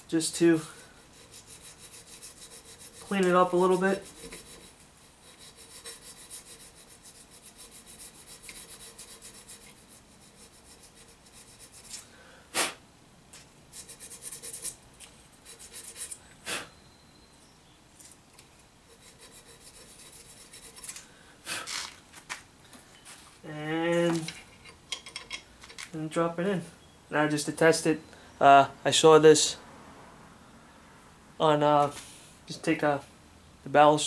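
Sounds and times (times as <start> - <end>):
sandpaper rasping on metal: 0.4 - 12.0, 13.7 - 14.8, 15.4 - 16.2, 18.9 - 21.0.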